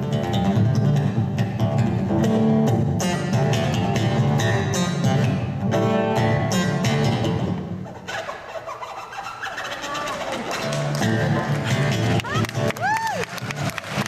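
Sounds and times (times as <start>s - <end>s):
acoustic guitar plucking and strumming: 0.0s - 12.8s.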